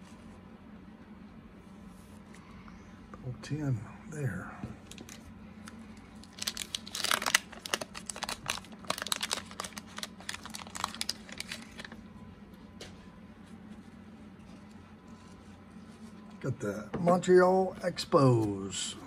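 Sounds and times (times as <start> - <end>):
paper wrapper crinkling and tearing: 4.8 - 12.0.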